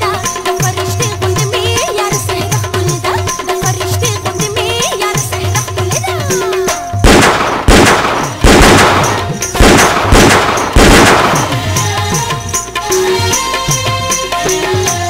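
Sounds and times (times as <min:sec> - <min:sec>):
song music: 0:07.0 - 0:15.0
handgun shots echoing: 0:07.1 - 0:11.6.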